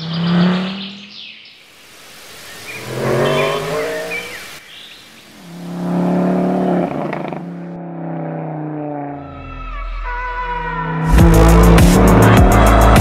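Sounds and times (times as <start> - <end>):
car engine revving: 0.0 - 1.2, 5.4 - 9.8, 10.8 - 13.0.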